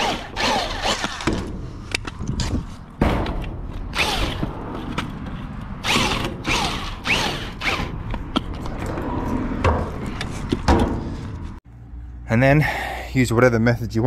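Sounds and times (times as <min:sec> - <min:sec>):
drill motor with auger grinding soil: 0:00.0 - 0:01.4, 0:03.9 - 0:04.4, 0:05.8 - 0:08.0.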